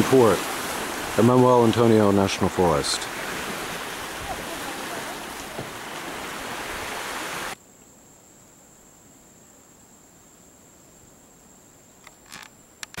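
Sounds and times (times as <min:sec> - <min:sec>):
sea surf: 0:00.0 - 0:07.6
faint hiss: 0:00.0 - 0:13.0
wind: 0:00.0 - 0:13.0.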